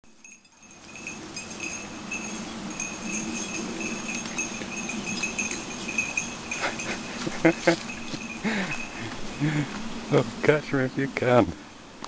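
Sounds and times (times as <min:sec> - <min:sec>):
small bell jingling: 0:00.1 - 0:09.3
low rustle of movement: 0:00.2 - 0:10.0.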